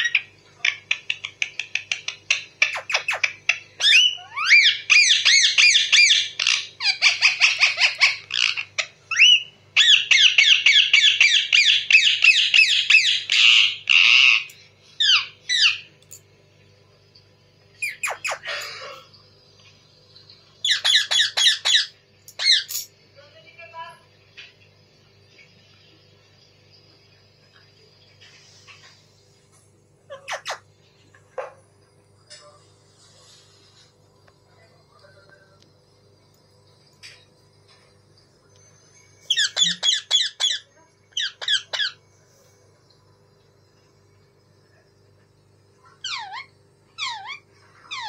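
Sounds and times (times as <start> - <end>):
parakeet chirping and squawking: 0.0 - 15.9, 17.7 - 19.2, 20.6 - 22.9, 30.1 - 30.8, 39.2 - 42.0, 45.8 - 48.0.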